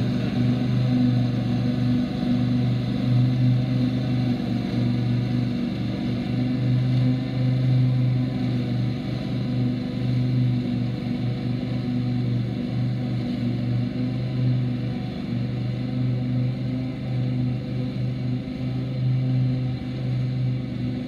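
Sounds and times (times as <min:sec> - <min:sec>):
lawn tractor engine running: 0:00.0 - 0:13.5.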